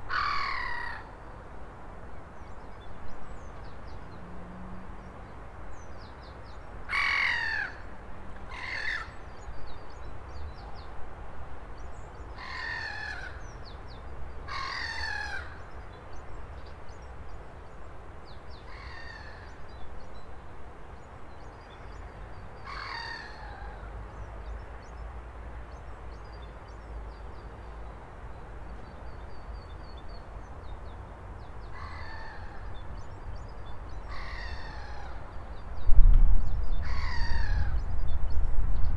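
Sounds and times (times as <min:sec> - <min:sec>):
large birds calling: 0:00.0 - 0:01.2, 0:06.9 - 0:07.9, 0:08.5 - 0:09.5, 0:12.3 - 0:13.8, 0:14.5 - 0:15.8, 0:18.6 - 0:19.7, 0:21.7 - 0:24.6, 0:31.5 - 0:35.7, 0:36.7 - 0:38.0.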